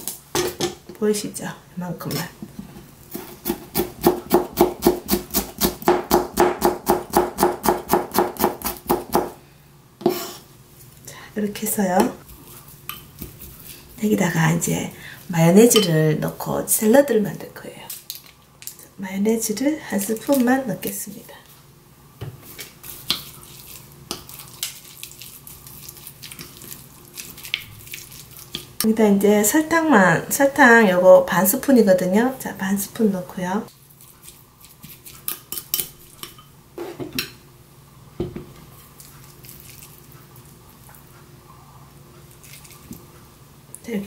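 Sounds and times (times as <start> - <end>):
knife chopping on cutting board: 3.1 - 9.4
spoon mixing wet salad: 12.0 - 14.1, 22.4 - 28.9, 33.7 - 36.5, 38.6 - 41.1, 42.2 - 43.1.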